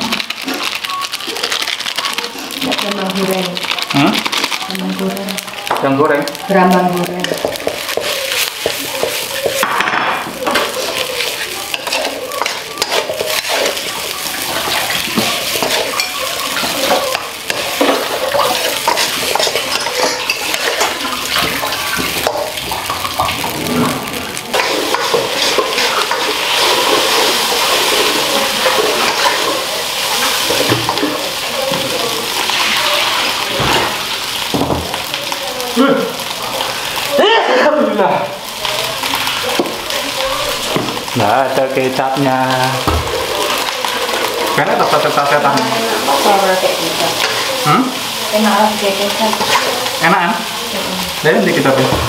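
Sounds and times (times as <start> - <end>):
frying hiss: 0.0 - 52.0
metal spatula scraping a wok: 10.4 - 31.3, 43.2 - 47.7, 48.3 - 50.1.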